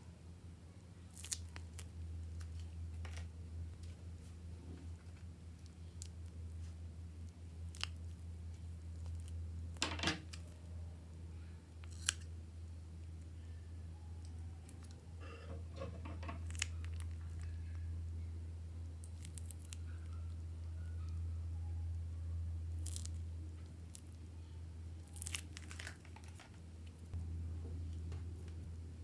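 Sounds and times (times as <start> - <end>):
steady low hum: 0.0 - 29.0
plastic piping bag crinkling: 19.0 - 20.2, 25.0 - 27.1.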